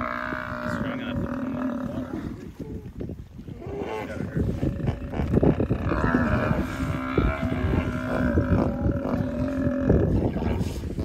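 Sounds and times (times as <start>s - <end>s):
buffalo bellowing: 3.8s - 10.6s.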